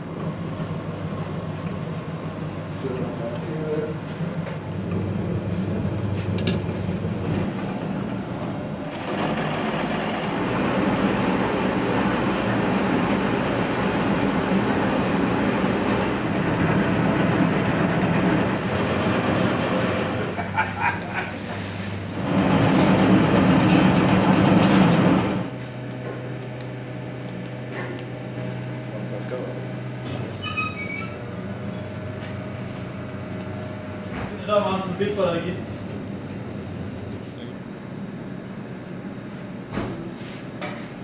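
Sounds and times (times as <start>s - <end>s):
machinery rumbling with low hum: 0.0s - 41.0s
dough mixer running: 4.2s - 20.5s, 21.6s - 25.6s.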